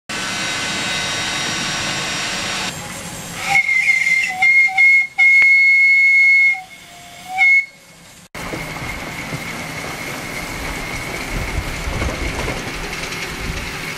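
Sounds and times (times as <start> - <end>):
high-pitched steam whistle: 0.3 - 8.0
steady steam hiss: 0.3 - 13.9.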